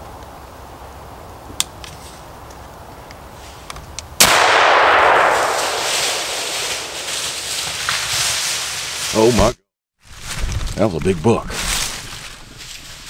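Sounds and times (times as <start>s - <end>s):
rifle shot with echo: 4.2s - 8.0s.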